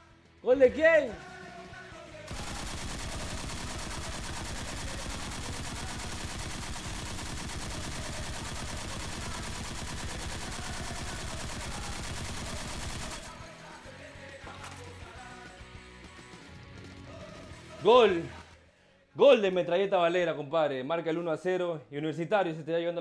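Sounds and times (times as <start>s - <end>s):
machine-gun automatic fire: 2.3s - 13.8s.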